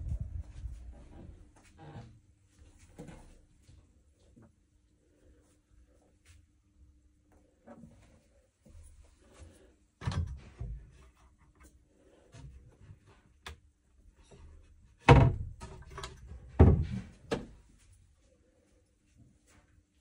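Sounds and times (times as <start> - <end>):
cabinet doors knocking and thudding: 15.1 - 17.6.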